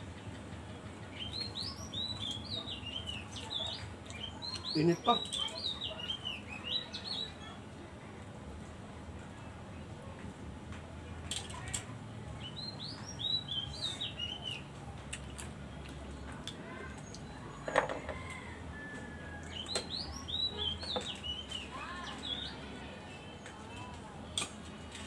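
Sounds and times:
songbird chirping: 0:00.0 - 0:07.7, 0:12.3 - 0:24.2.

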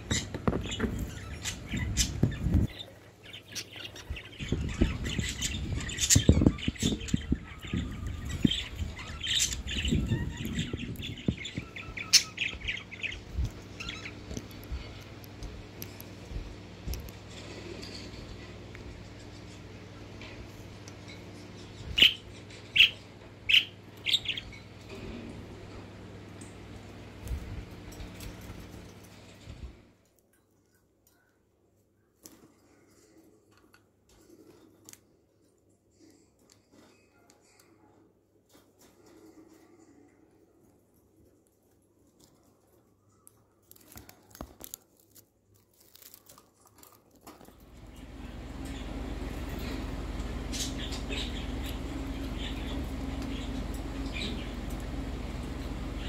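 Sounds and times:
parakeet calling: 0:00.0 - 0:15.0, 0:21.3 - 0:25.2, 0:47.7 - 0:56.0.

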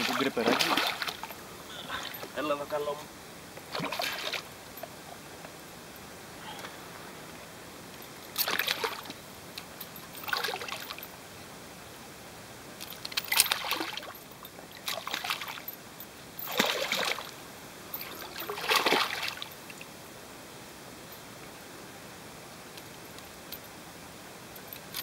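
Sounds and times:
fish splashing in water: 0:00.0 - 0:01.3, 0:03.7 - 0:04.5, 0:08.4 - 0:09.1, 0:13.4 - 0:14.1, 0:16.5 - 0:17.3, 0:18.2 - 0:19.5.

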